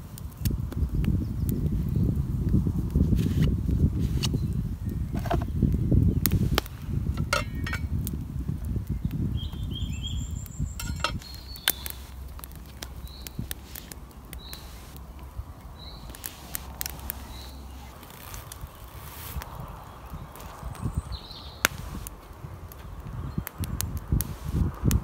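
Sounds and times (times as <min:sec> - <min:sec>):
campfire crackling and popping: 0:00.0 - 0:25.0
bird chirping: 0:08.9 - 0:21.9.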